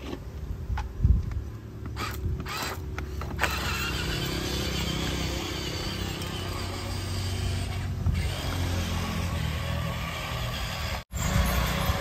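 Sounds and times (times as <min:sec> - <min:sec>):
excavator running: 0:02.4 - 0:12.0.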